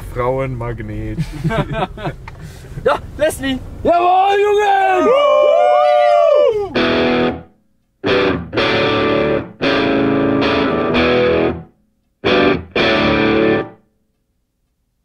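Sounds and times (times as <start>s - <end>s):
distorted electric guitar chords: 6.8s - 13.8s.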